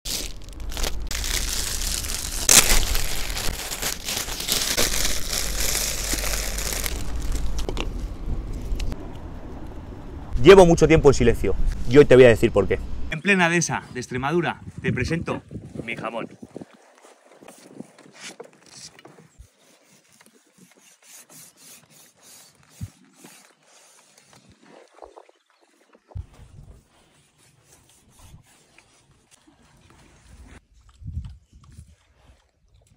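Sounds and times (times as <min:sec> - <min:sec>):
plastic bag crinkling: 0:00.1 - 0:08.0.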